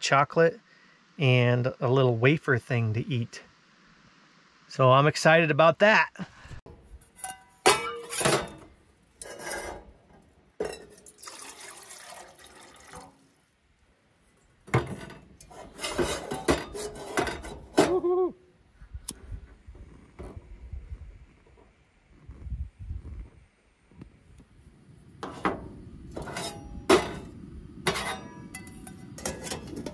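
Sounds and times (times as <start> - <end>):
metal pot and lid clinking: 7.1 - 9.9, 10.6 - 11.5, 14.7 - 18.0, 25.2 - 29.9
water pouring into pot: 10.9 - 13.4.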